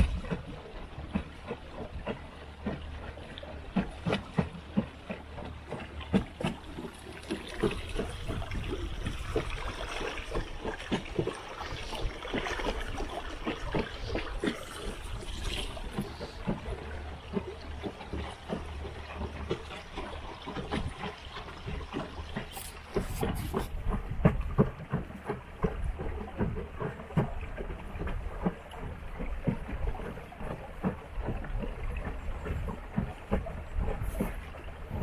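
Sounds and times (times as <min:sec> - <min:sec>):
water lapping against boat hull: 0:00.0 - 0:35.0
low rumble: 0:07.3 - 0:21.0, 0:22.2 - 0:35.0.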